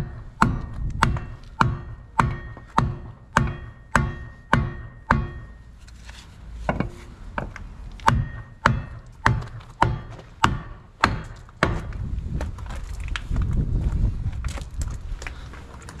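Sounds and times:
hammer striking wooden block: 0.0 - 5.6, 6.7 - 12.0.

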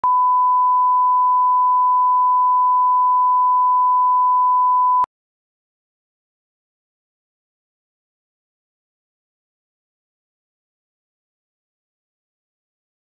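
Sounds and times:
steady pure beep: 0.0 - 5.1.

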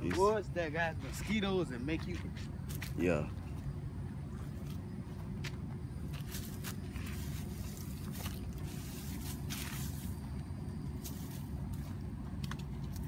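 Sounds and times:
steady low rumble: 0.0 - 13.0
hands scraping dry leaves: 6.1 - 10.3, 10.9 - 12.0.

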